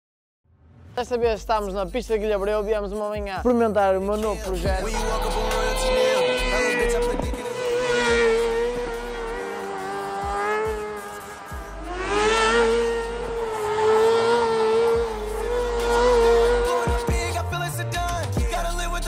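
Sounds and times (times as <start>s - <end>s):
motorcycle engine at high revs: 4.9s - 17.5s.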